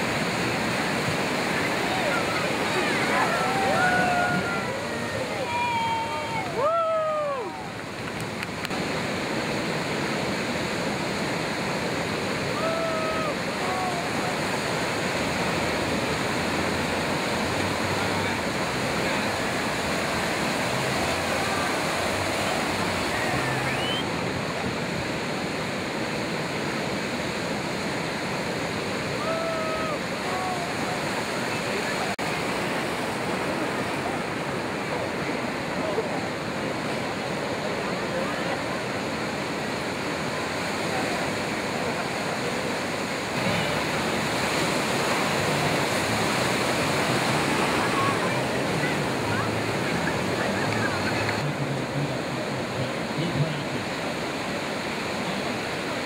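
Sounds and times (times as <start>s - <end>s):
ocean surf breaking: 0.0s - 56.0s.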